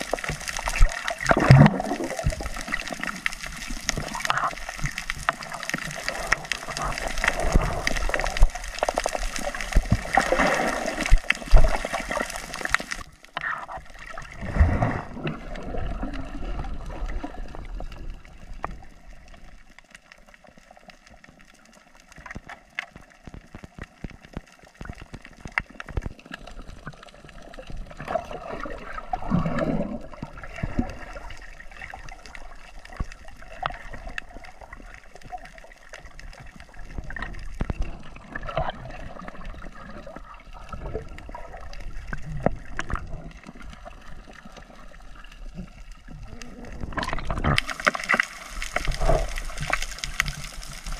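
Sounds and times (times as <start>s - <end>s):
sharp ticks and crackles: 0.0s - 13.8s, 18.6s - 27.8s, 41.2s - 50.9s
underwater gurgling and bubbling: 0.0s - 50.9s.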